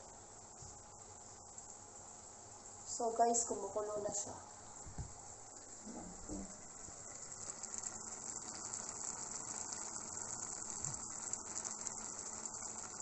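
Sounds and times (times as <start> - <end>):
pot bubbling and crackling: 4.8 - 13.0.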